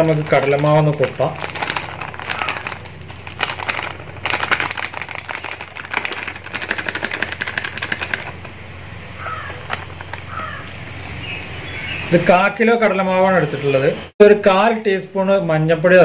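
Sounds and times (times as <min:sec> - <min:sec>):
plastic packet crinkling: 0:00.0 - 0:08.6, 0:09.2 - 0:11.3.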